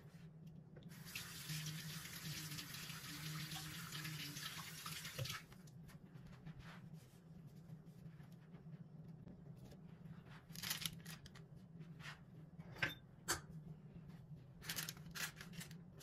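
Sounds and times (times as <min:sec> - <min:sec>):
water running from tap: 0:00.9 - 0:05.5.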